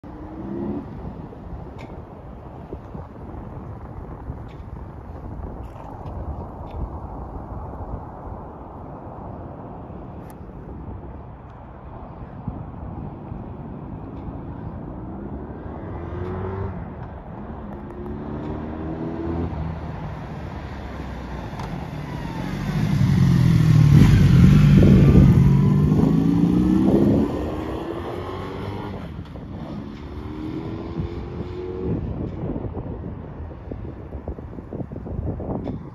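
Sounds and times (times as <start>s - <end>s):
motorcycle engine accelerating: 21.8s - 32.3s.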